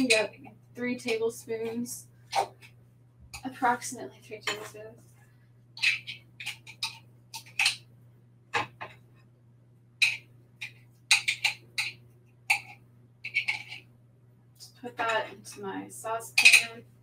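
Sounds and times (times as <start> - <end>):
low steady hum: 0.0 - 17.0
spoon scraping and clicking jar: 5.8 - 7.8, 10.0 - 13.8, 16.4 - 16.8.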